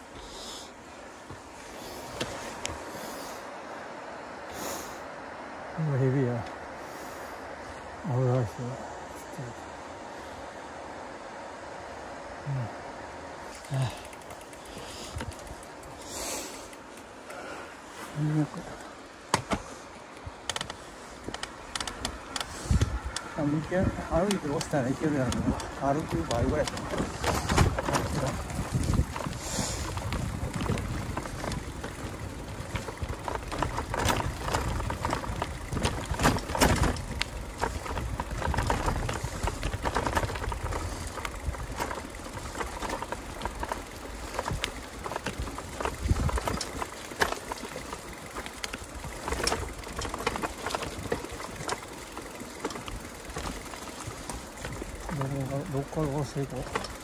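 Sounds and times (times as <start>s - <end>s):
tyres rumbling on trail: 0.0s - 57.0s
wind: 0.0s - 57.0s
bike frame and chain rattling: 13.4s - 57.0s.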